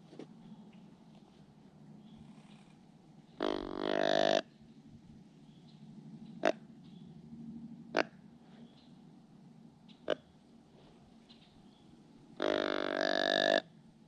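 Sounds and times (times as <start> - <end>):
deer grunt call: 12.4 - 13.7.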